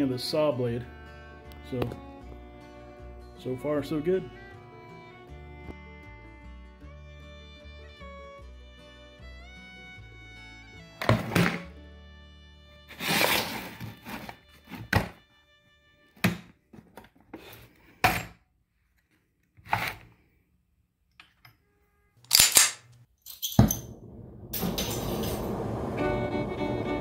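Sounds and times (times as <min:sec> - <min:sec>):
plastic case clicks and clunks: 0:11.0 - 0:11.6
torch gas burning rush: 0:24.0 - 0:27.0.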